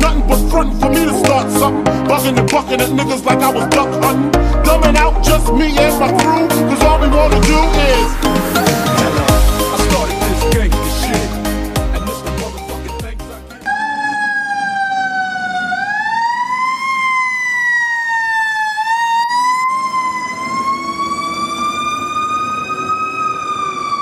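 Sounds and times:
fire truck siren wailing: 0:00.0 - 0:10.5, 0:13.6 - 0:24.0
music: 0:00.0 - 0:13.7.

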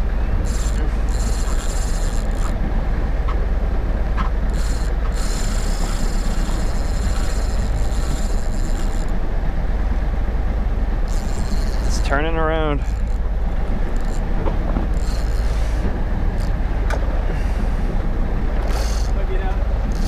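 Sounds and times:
boat engine rumble: 0:00.0 - 0:20.0
fishing reel gears whirring: 0:00.3 - 0:02.6, 0:04.2 - 0:09.2, 0:11.0 - 0:16.7, 0:18.5 - 0:20.0.

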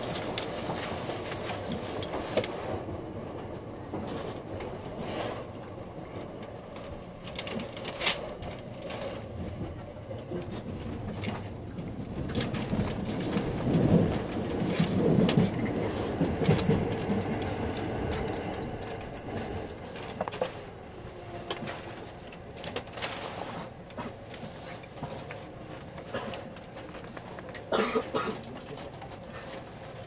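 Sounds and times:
light clicks from train wheels: 0:00.0 - 0:20.7, 0:21.4 - 0:30.0
train passing on next track: 0:00.0 - 0:23.0
train running noise: 0:00.0 - 0:30.0.

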